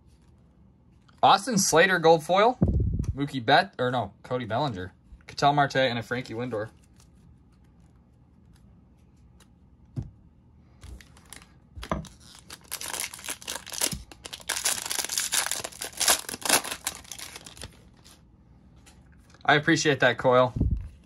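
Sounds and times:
wrapper tearing and crinkling: 11.0 - 18.2.

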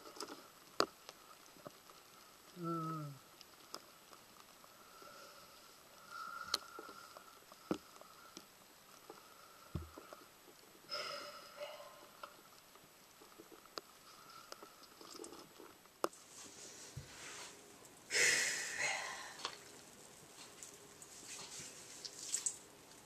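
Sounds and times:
fuller rustle: 12.0 - 18.0, 19.6 - 22.7
wet squishing of lathered hair: 18.4 - 23.0.

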